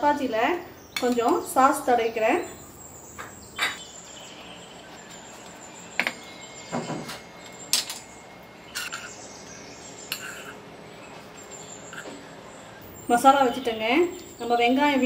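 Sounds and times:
spoon scraping steel plate: 10.1 - 10.6.

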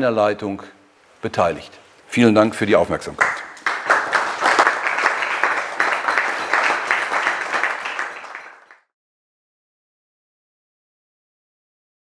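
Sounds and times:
audience applauding: 3.2 - 8.9.

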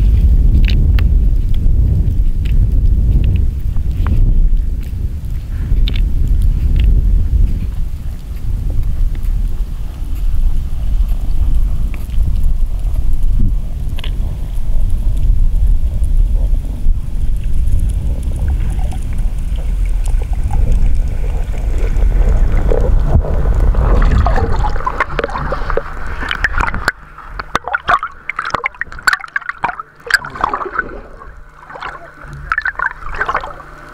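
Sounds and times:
underwater clicks and bubbly pops: 0.0 - 33.9
water splashing and gurgling: 0.0 - 33.9
water rushing past: 17.8 - 33.9.

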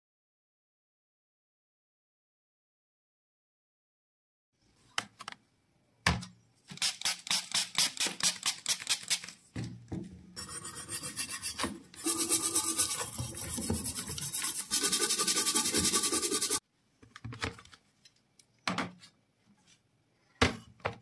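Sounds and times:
brush scrubbing metal: 10.4 - 16.6.

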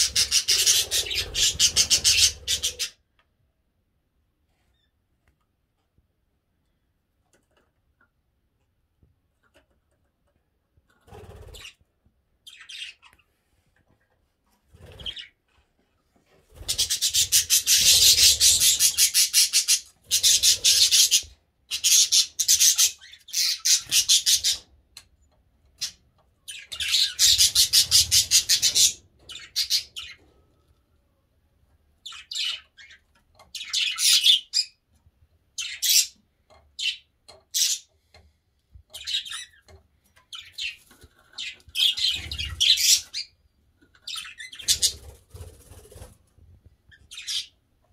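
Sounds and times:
budgerigars chattering and warbling: 0.0 - 3.0, 16.6 - 24.7, 25.8 - 30.3, 32.0 - 34.8, 35.6 - 36.2, 38.9 - 39.7, 40.3 - 43.3, 43.9 - 45.8, 46.9 - 47.6.

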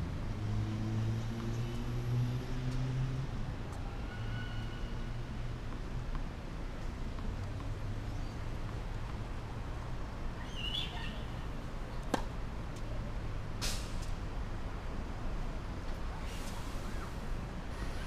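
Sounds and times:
brief scuffing hiss: 13.6 - 14.1.

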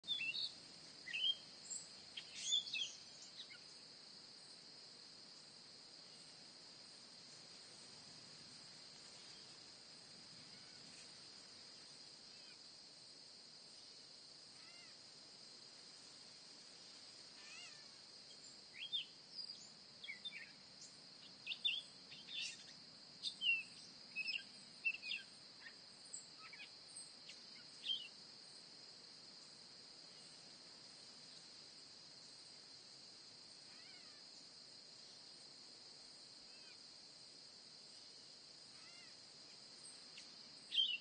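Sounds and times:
insects droning: 0.0 - 41.0
bird chirps and calls: 1.1 - 1.4, 2.2 - 3.6, 40.7 - 41.0.

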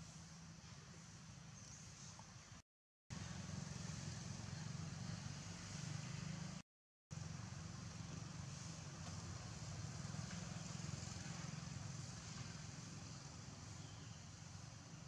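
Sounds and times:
low outdoor rumble: 0.0 - 6.6, 7.2 - 15.0
faint hiss: 7.2 - 15.0.

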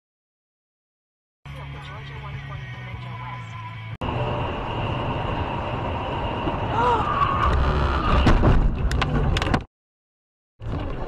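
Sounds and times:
car road and engine noise: 1.5 - 9.7.

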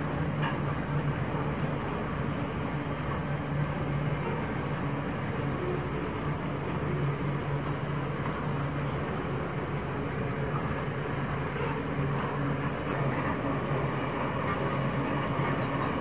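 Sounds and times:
freight wagons rumbling over viaduct: 0.0 - 16.0.

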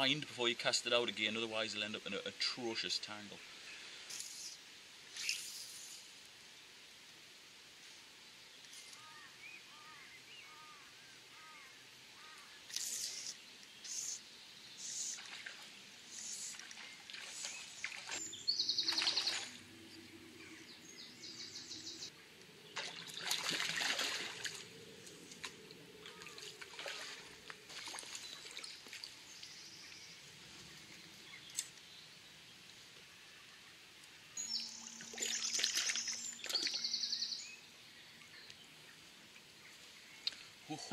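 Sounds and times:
birds calling: 8.7 - 32.8, 34.1 - 40.9
fish splashing and thrashing: 22.7 - 24.7, 25.3 - 29.1, 35.1 - 36.8.

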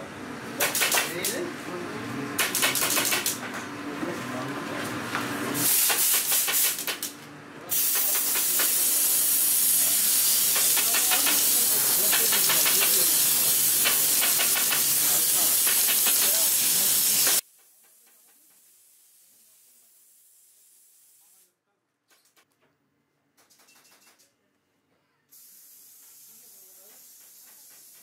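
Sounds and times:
pneumatic staple gun clicks: 0.6 - 1.4, 2.4 - 3.4, 5.6 - 7.1, 9.6 - 17.4
compressed air hissing: 5.6 - 7.1, 7.7 - 17.4, 25.3 - 28.0.

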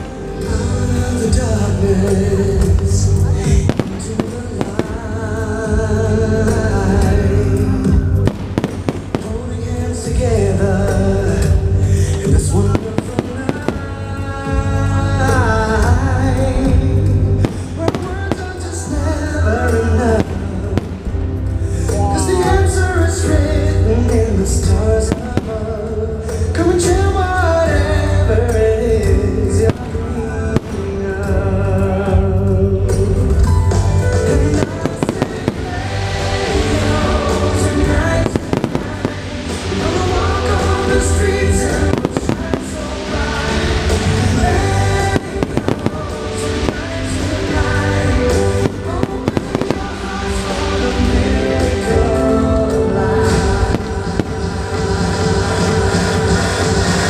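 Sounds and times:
fireworks bursting and crackling: 0.0 - 57.0
music with singing: 0.0 - 57.0
firework shells bursting: 34.5 - 51.2.

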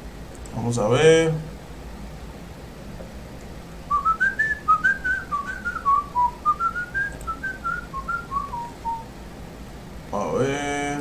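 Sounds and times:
man whistling a tune: 3.9 - 9.1.

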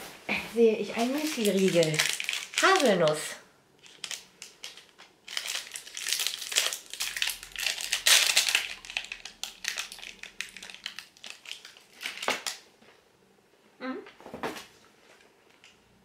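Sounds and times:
plastic wrapper crinkling: 0.8 - 12.7.

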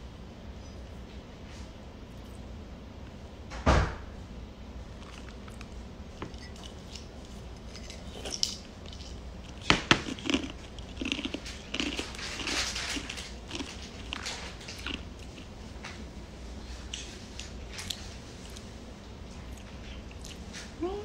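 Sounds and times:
crackly crunching: 4.8 - 16.1, 16.7 - 20.7.

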